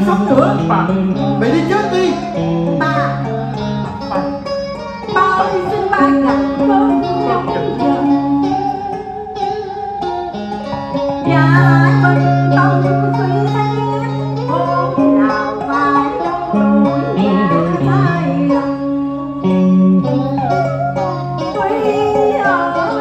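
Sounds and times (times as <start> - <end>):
plucked strings accompaniment: 0.0 - 23.0
person singing: 2.3 - 9.1, 10.8 - 23.0
long held low notes: 10.9 - 23.0.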